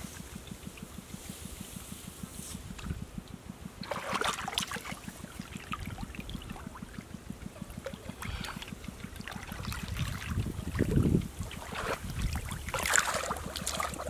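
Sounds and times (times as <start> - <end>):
low pulsing throb: 0.0 - 14.0
hands splashing in muddy water: 7.9 - 14.0.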